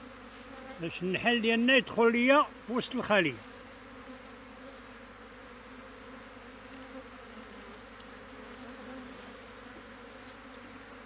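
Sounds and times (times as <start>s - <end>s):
bee swarm buzzing: 0.0s - 11.0s.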